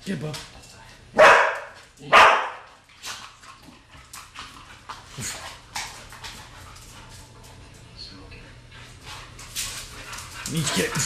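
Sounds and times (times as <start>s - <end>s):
paws scratching and tapping: 0.2s - 7.9s, 8.8s - 11.0s.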